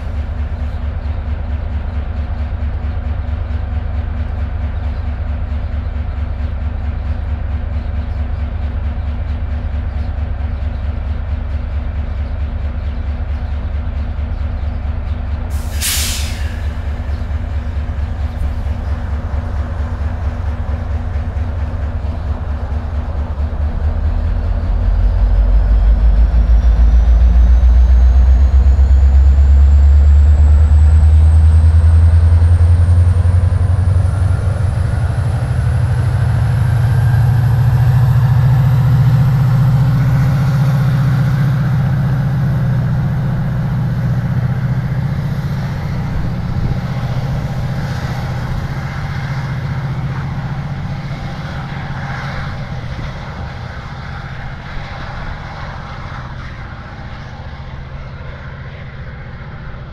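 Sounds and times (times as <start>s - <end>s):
diesel locomotive engine throttling up: 0.0s - 59.9s
thin rising whine: 23.8s - 59.9s.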